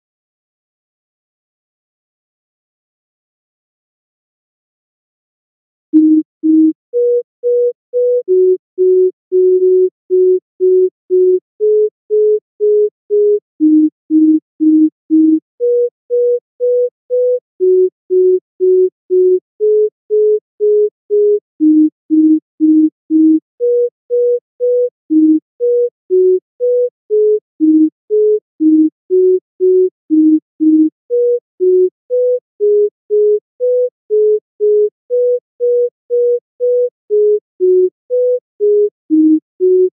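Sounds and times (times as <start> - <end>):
sine wave synth notes: 6.0 - 7.2, 8.4 - 20.8, 21.6 - 38.4.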